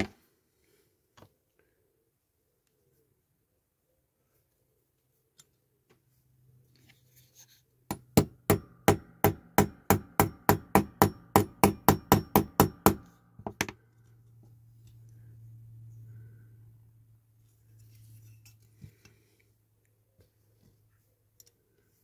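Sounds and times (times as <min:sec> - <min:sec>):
small hammer tapping metal: 0:07.9 - 0:13.8.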